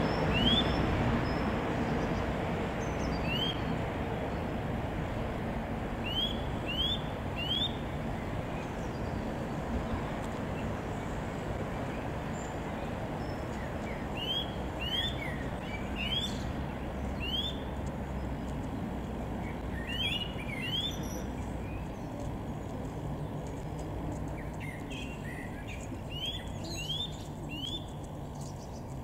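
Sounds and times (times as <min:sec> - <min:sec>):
bird whistled calls: 0:00.1 - 0:01.5, 0:03.1 - 0:03.7, 0:06.0 - 0:07.8, 0:14.2 - 0:16.4, 0:17.2 - 0:17.7, 0:19.8 - 0:21.8, 0:24.6 - 0:28.0.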